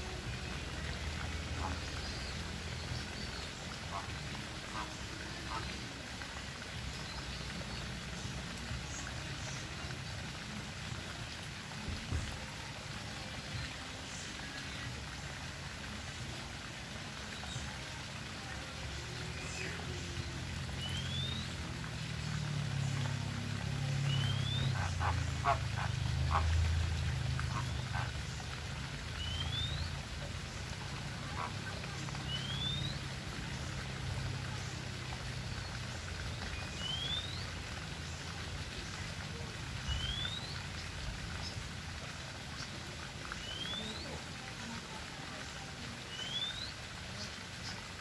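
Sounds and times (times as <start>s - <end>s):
flamingos grunting: 24.4s - 28.2s.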